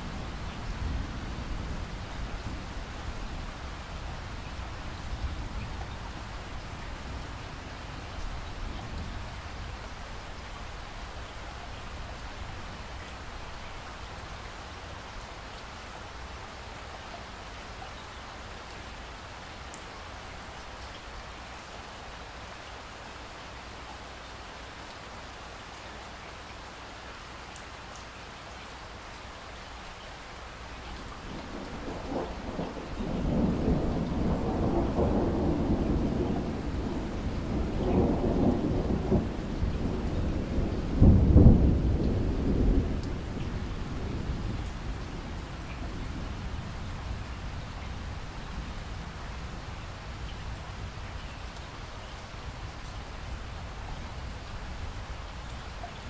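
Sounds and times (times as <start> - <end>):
steady rain falling: 0.0 - 56.0
thunder rumbling: 31.2 - 49.6.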